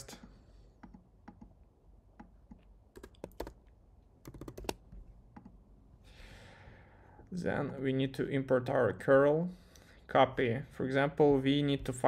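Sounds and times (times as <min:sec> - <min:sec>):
faint typing on computer keyboard: 0:02.2 - 0:05.6.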